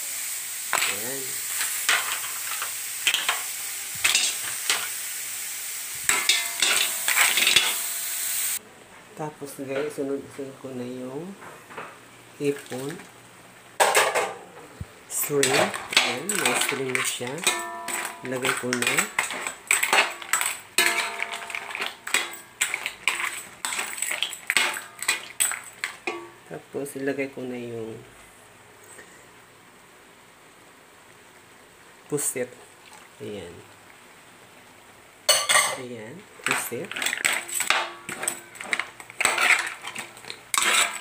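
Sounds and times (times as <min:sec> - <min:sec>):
frying hiss in a wok: 0:00.0 - 0:41.0
shells clattering against pan: 0:00.7 - 0:04.9, 0:06.1 - 0:07.8, 0:15.3 - 0:26.4, 0:36.4 - 0:41.0.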